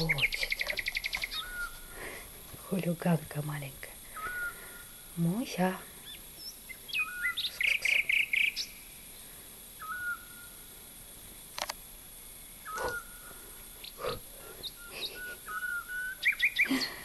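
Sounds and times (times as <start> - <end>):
whistled bird calls: 0.0 - 1.9, 4.1 - 4.9, 6.0 - 8.8, 9.8 - 10.6, 12.6 - 13.3, 14.6 - 17.0
small bird chirping: 0.0 - 10.7, 12.5 - 17.0
sharp clicks: 11.5 - 11.8.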